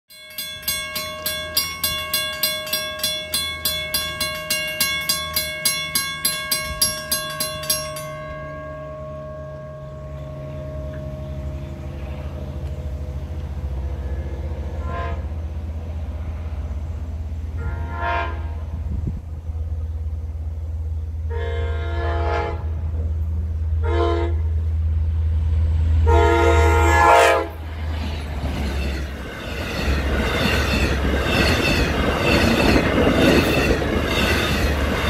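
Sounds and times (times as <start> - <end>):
railroad crossing bell ringing: 0.1 - 14.8, 27.1 - 35.0
train rumble: 0.1 - 35.0
train horn blast: 13.9 - 15.5, 17.6 - 18.8, 21.2 - 23.0, 23.8 - 24.6, 26.0 - 27.6.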